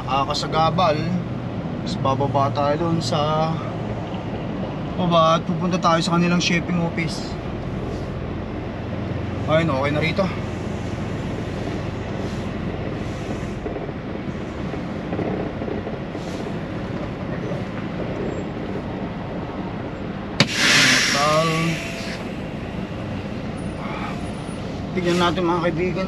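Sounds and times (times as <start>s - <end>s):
diesel truck engine idling: 16.2s - 25.6s
air brake hiss: 20.4s - 22.8s.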